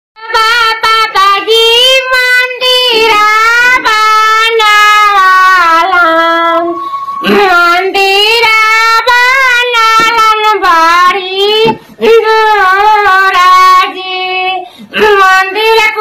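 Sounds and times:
man singing in falsetto: 0:02.7 - 0:10.4.

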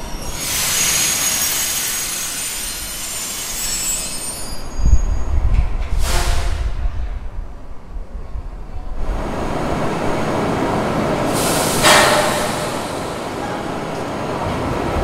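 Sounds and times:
train wheels squealing on rail: 0:00.0 - 0:06.7.

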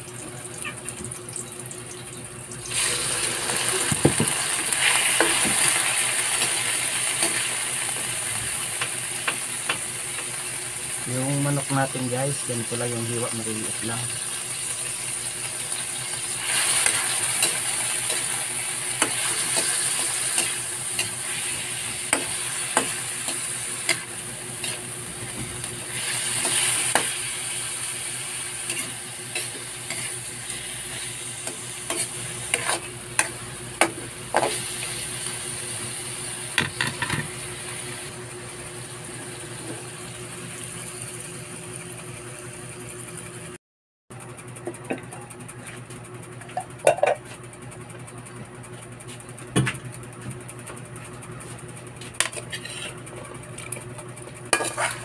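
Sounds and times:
chicken sizzling in a wok: 0:02.6 - 0:42.7
spatula scraping a wok: 0:16.3 - 0:25.0, 0:25.9 - 0:27.3, 0:28.5 - 0:33.3, 0:52.2 - 0:53.1, 0:54.6 - 0:55.0.

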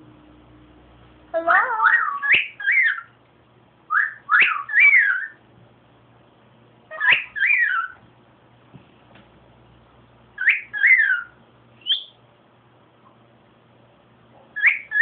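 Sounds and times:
cockatiel whistling: 0:01.8 - 0:03.1, 0:03.9 - 0:05.4, 0:06.9 - 0:08.0, 0:10.4 - 0:12.2, 0:14.6 - 0:15.0.

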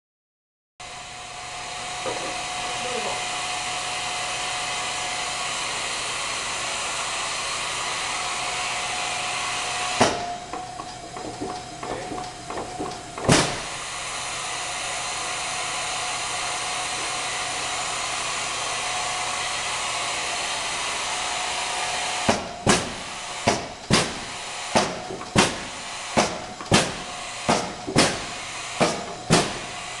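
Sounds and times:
punch press motor whirring: 0:00.8 - 0:30.0
press ram striking: 0:09.8 - 0:13.8, 0:22.2 - 0:30.0.

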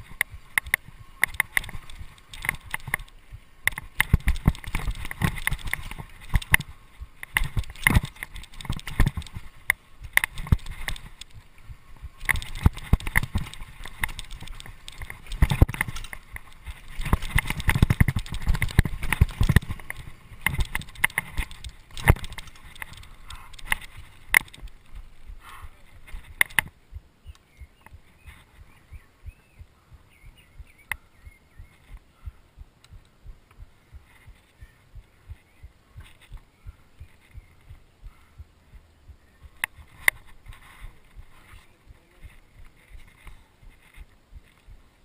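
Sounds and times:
bike knocks and rattles: 0:03.7 - 0:11.2, 0:12.0 - 0:24.8.

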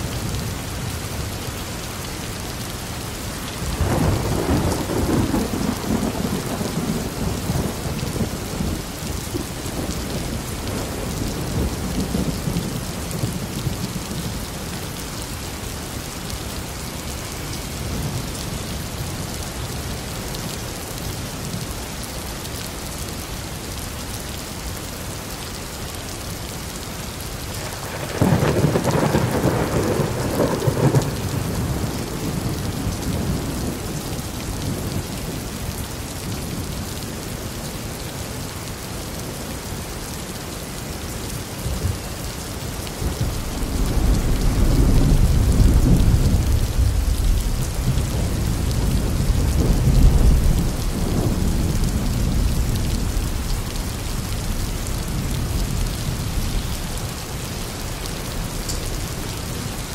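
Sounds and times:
heavy rain: 0:00.0 - 0:59.9
thunder rumbling: 0:03.7 - 0:14.4, 0:27.5 - 0:35.4, 0:42.9 - 0:59.9.

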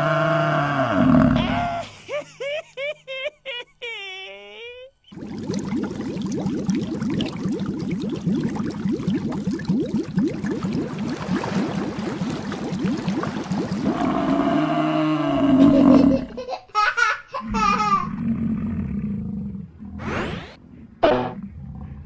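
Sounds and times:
bubbling water splash effect: 0:05.1 - 0:16.3.

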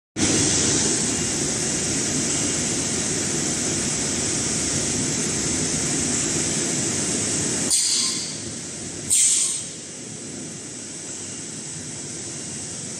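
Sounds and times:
paper machine hiss and rumble: 0:00.2 - 0:12.9
short burst of hiss: 0:09.1 - 0:09.8.

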